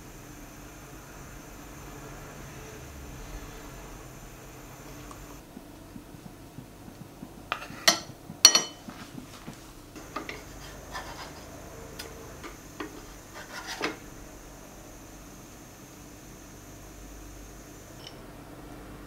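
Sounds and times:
short scrape: 10.2s - 14.1s.

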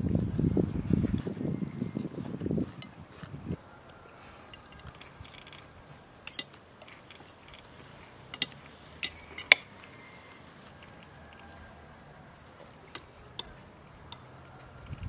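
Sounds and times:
cutlery clinking on a plate: 6.3s - 7.7s, 8.3s - 9.8s, 12.7s - 14.4s.

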